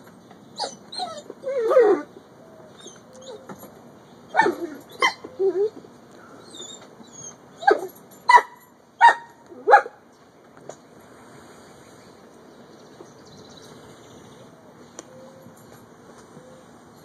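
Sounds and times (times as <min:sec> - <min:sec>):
dogs barking and yipping: 0:00.5 - 0:05.8, 0:06.4 - 0:10.0.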